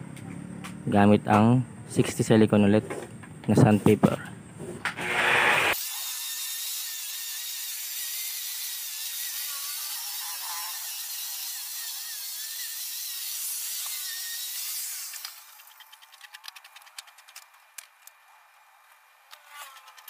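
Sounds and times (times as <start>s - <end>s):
electric sander whining: 4.9s - 5.8s.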